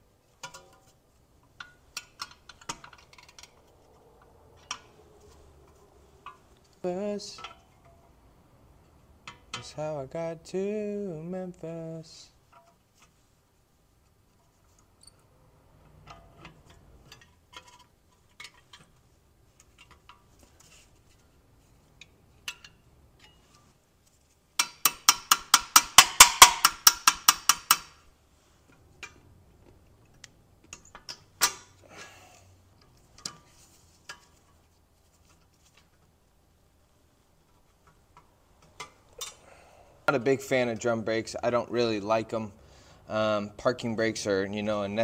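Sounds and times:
metal tools clicking and tapping: 0.4s - 3.7s, 4.6s - 5.0s, 7.3s - 8.1s, 9.2s - 9.8s, 22.0s - 23.6s, 24.6s - 28.0s, 37.8s - 39.4s
rapid sharp metallic clicks: 24.6s - 28.0s.

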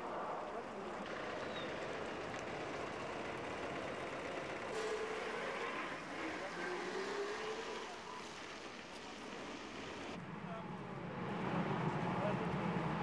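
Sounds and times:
vehicle engines running: 0.0s - 13.0s.

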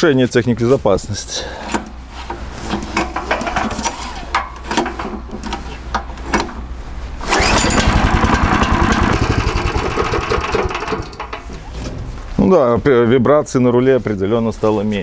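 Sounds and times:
engine pull-started: 7.2s - 11.6s
engine running fast beat: 7.3s - 11.2s
knocks and rattles: 7.3s - 12.1s.

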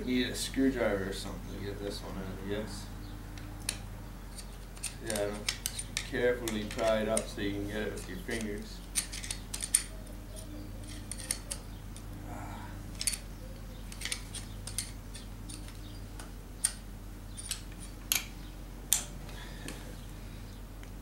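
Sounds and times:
steady low hum: 0.0s - 21.0s
screwdriver clicking and scraping metal: 3.7s - 12.1s, 12.9s - 13.2s, 13.9s - 15.8s.

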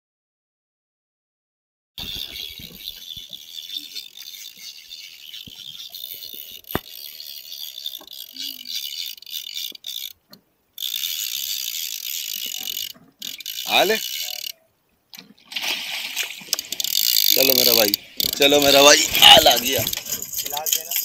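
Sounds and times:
fishing reel clicker buzzing: 2.0s - 10.2s, 10.8s - 14.6s, 16.5s - 20.2s.

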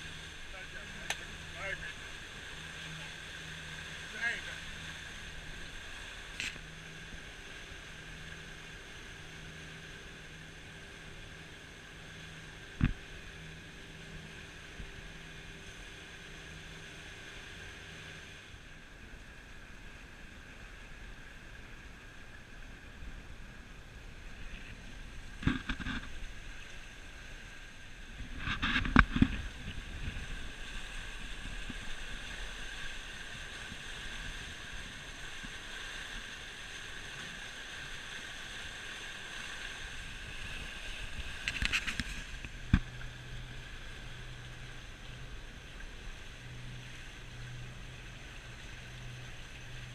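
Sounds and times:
water rushing along hull: 0.0s - 49.9s
wind on microphone: 28.1s - 32.6s.

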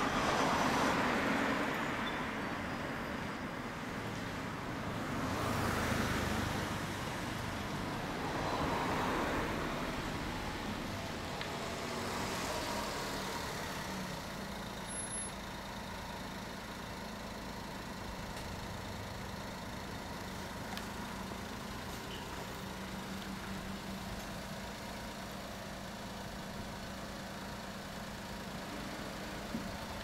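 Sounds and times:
vehicle engine idling: 6.2s - 30.0s.

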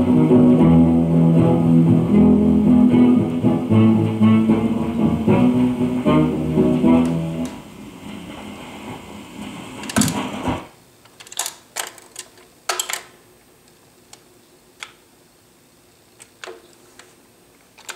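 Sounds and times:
song on record: 0.0s - 10.7s
run-out groove hiss: 0.0s - 11.0s.

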